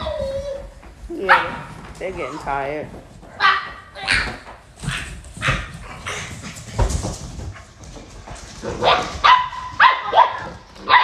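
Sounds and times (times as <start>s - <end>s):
puppy yips: 0.0s - 0.7s
puppies scuffling: 0.0s - 11.0s.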